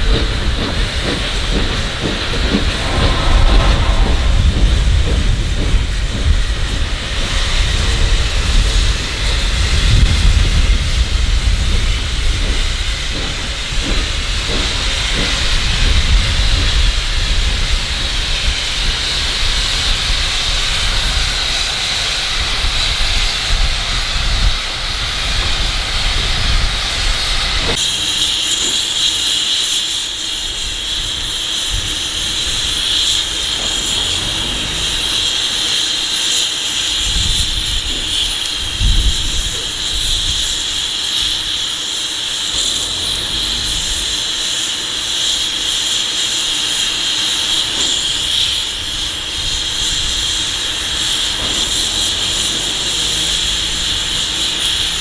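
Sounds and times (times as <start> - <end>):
locomotive running gear rumble: 0.0 - 20.3, 31.7 - 55.0
steam hiss: 0.0 - 55.0.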